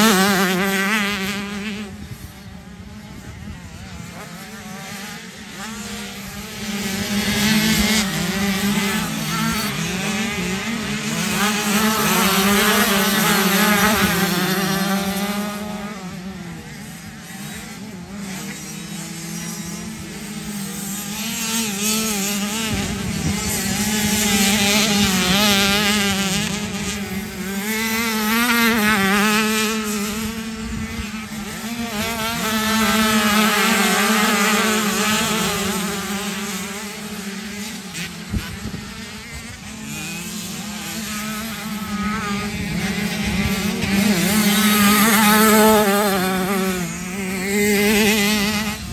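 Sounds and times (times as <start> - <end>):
motocross bike engines revving: 0.0 - 48.9.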